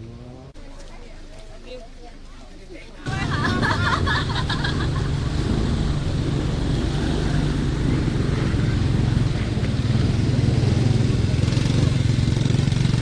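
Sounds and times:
vehicle engine low drone: 0.0s - 0.8s, 3.1s - 13.0s.

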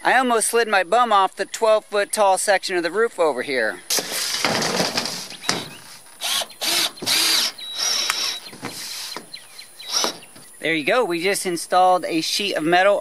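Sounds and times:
cordless drill driving screw into metal: 3.9s - 9.2s, 9.9s - 10.4s.

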